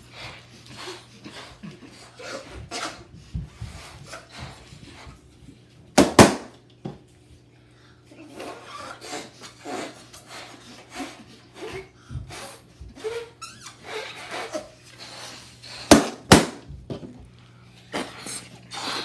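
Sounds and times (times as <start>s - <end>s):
blowing air into balloons: 0.0s - 5.2s, 8.2s - 16.8s, 17.8s - 19.0s
rubber rubbing and squeaking: 1.9s - 5.2s, 8.3s - 16.6s
balloons popping: 6.0s - 6.5s, 15.8s - 16.7s.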